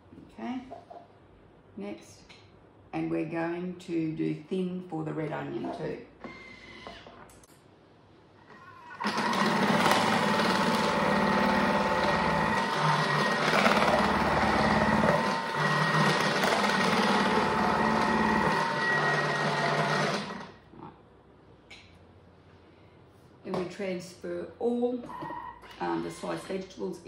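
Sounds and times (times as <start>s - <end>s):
food processor motor whine: 8.6s - 20.6s.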